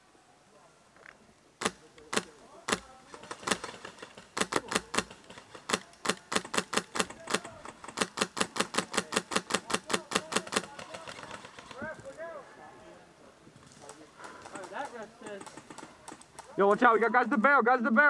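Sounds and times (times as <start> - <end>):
airsoft gun shots: 1.6 - 11.8.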